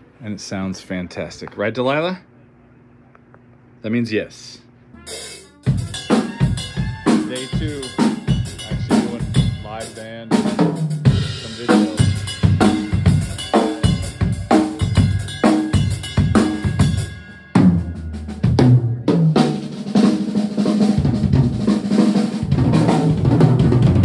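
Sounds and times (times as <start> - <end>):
band playing a groove: 5.0 - 24.0
drum kit hits: 5.0 - 24.0.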